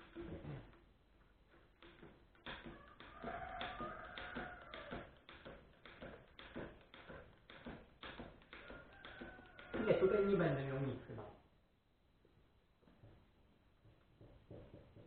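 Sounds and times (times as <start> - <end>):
hand tools clicking on metal: 0.0 - 10.5.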